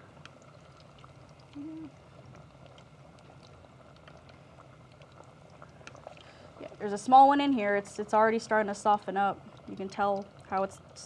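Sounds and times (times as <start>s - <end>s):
fries sizzling in hot oil: 0.0s - 11.0s
small crackles: 0.0s - 11.0s.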